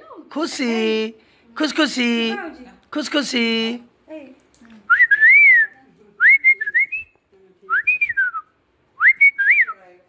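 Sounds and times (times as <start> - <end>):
person whistling: 4.9 - 7.1, 7.8 - 9.8.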